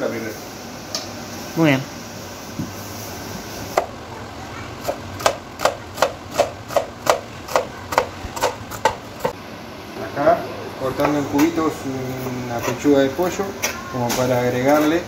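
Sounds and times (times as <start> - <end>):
knife chopping on cutting board: 4.8 - 9.4.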